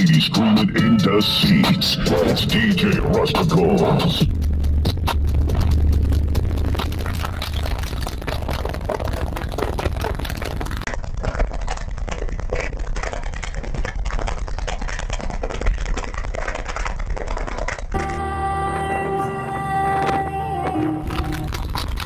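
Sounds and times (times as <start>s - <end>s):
subwoofer deep bass: 0.0s - 10.9s
interior crackling and rattling: 1.3s - 18.2s, 20.0s - 22.0s.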